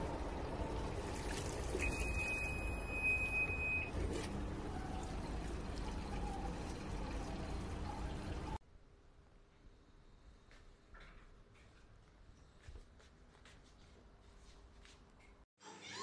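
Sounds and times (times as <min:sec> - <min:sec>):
water rushing into washing machine: 0:00.0 - 0:03.0, 0:03.9 - 0:08.6.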